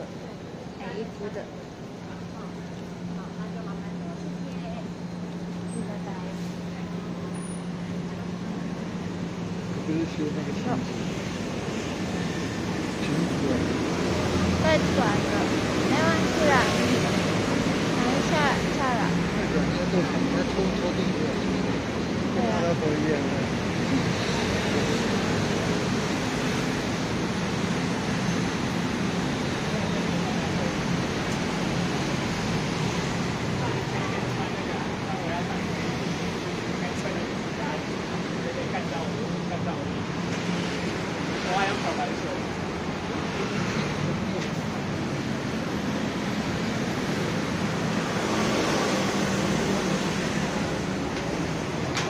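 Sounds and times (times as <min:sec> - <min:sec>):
crowd noise: 0:00.0 - 0:26.4
busy pavement: 0:00.0 - 0:52.0
traffic: 0:00.0 - 0:52.0.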